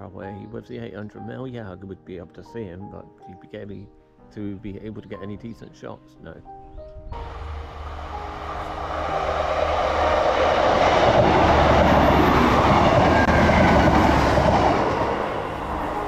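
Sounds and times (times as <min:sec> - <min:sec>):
train passing: 0:07.2 - 0:16.0.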